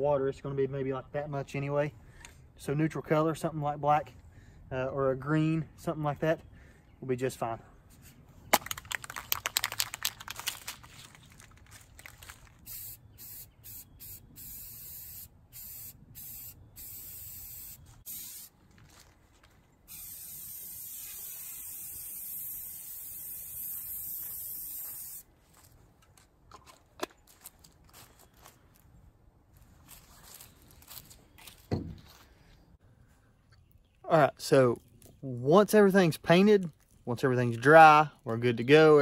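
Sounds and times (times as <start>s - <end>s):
spray can ball rattling: 8.6s - 18.5s, 19.9s - 25.2s
spray paint hissing: 12.6s - 18.5s, 19.9s - 25.3s.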